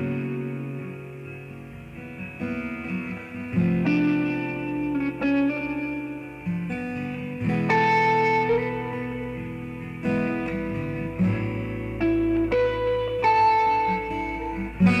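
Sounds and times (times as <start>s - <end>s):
plucked guitar instrumental: 0.0s - 15.0s.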